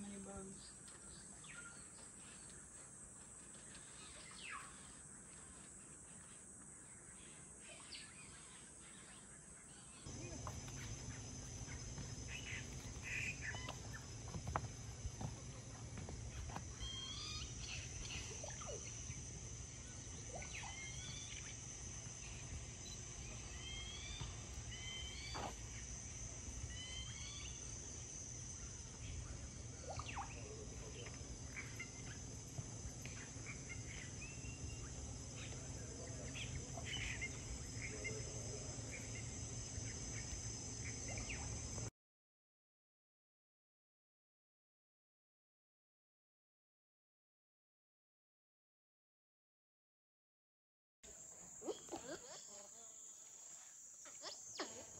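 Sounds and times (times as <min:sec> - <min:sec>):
bird calls: 0:00.0 - 0:41.7, 0:51.6 - 0:54.9
high-pitched insect drone: 0:03.5 - 0:41.9, 0:51.1 - 0:54.9.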